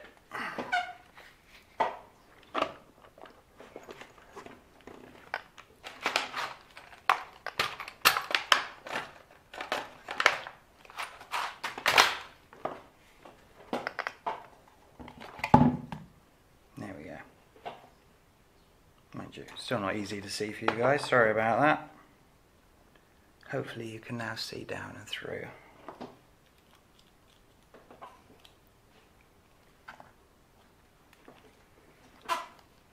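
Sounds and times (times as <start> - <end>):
crinkling scrapes: 2.4 - 7.9
plastic parts clicking: 5.2 - 12.3.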